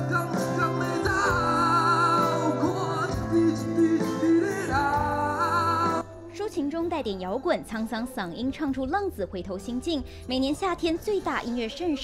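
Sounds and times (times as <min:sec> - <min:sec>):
man singing with vibrato: 0:00.0 - 0:06.3
live band playing: 0:00.0 - 0:06.9.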